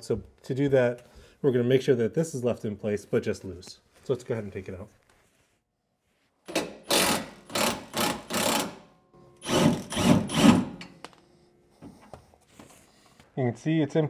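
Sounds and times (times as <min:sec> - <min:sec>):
impact wrench hammering: 0:06.5 - 0:11.0.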